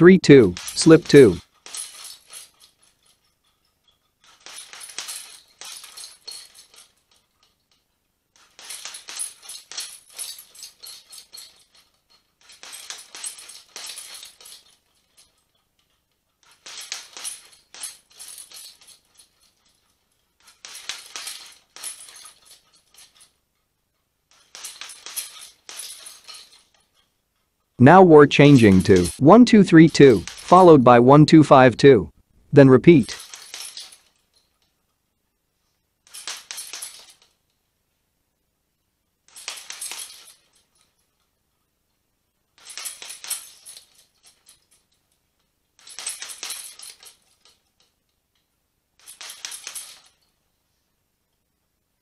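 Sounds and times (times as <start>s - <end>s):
metal chain clinking: 0.6s - 27.7s, 30.1s - 30.5s, 33.1s - 35.0s, 36.0s - 37.6s, 39.3s - 50.4s.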